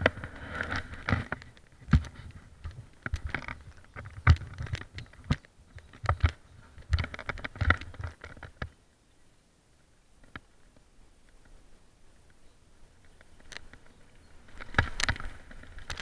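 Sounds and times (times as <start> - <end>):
mountain bike rattling over dirt: 0.0 - 8.7, 13.0 - 16.0.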